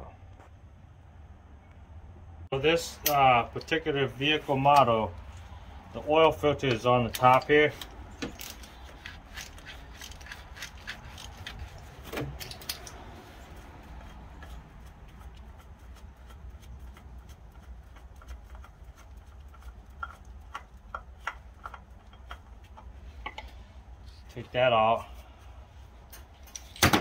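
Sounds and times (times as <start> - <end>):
wrench clicking on oil filter: 14.0 - 23.5.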